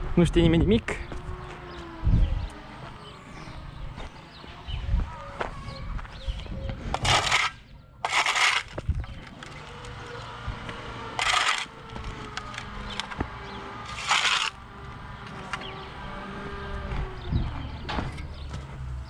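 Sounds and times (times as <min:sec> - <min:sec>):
shovel scraping asphalt: 0:06.9 - 0:09.8, 0:11.1 - 0:13.0, 0:13.8 - 0:14.6.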